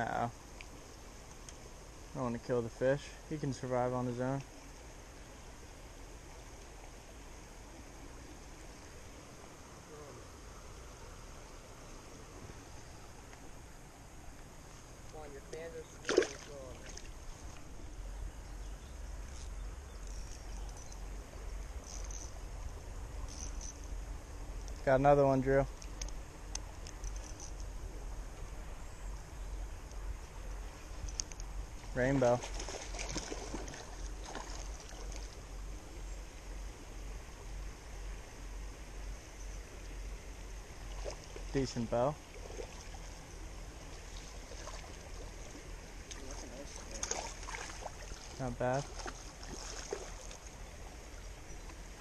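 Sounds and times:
creek water rushing over stones: 0:03.1 - 0:18.2, 0:31.6 - 0:36.0, 0:40.6 - 0:52.0.

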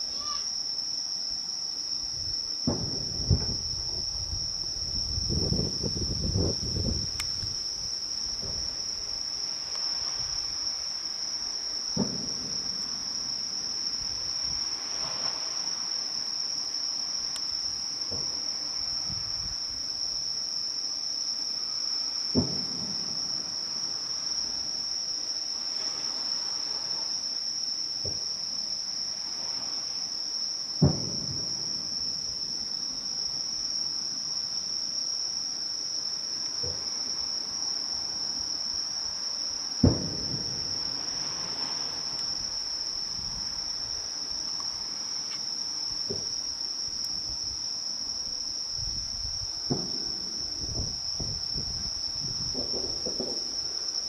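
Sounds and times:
insect chorus: 0:00.0 - 0:54.0
fireworks booming: 0:02.6 - 0:07.4, 0:08.2 - 0:08.8, 0:11.9 - 0:13.4, 0:22.3 - 0:23.6, 0:30.8 - 0:32.5, 0:39.8 - 0:43.5, 0:46.0 - 0:46.3, 0:49.6 - 0:53.8.

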